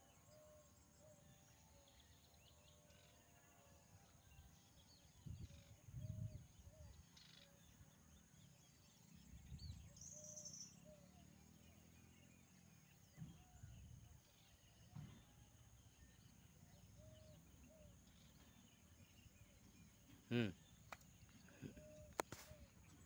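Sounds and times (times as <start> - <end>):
faint short bird calls: 20.1 - 23.0.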